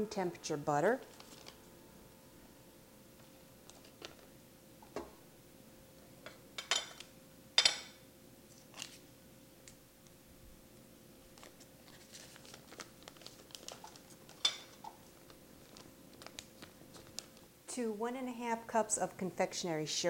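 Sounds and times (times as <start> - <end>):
wrapper paper crinkling: 1.0 - 1.7, 8.5 - 9.0, 11.3 - 17.5.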